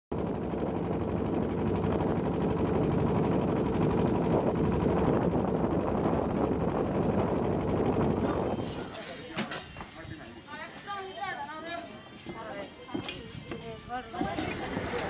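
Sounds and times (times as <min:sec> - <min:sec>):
boat engine knocking: 0:00.1 - 0:08.6, 0:13.5 - 0:15.0.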